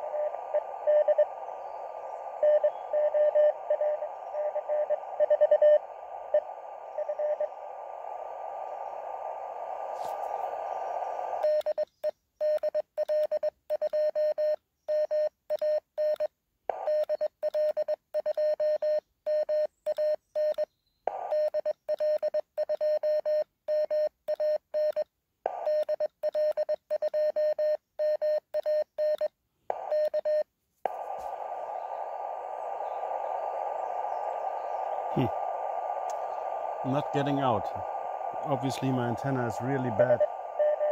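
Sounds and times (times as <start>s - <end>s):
morse code beeps: 0.0s - 1.3s, 2.4s - 7.5s, 11.4s - 20.7s, 21.3s - 30.4s, 39.7s - 40.9s
static hiss: 0.0s - 11.6s, 30.9s - 40.9s.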